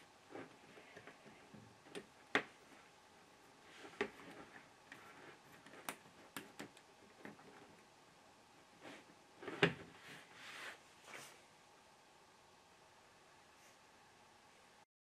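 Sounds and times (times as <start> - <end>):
cable connectors clicking and knocking: 3.9 - 7.8.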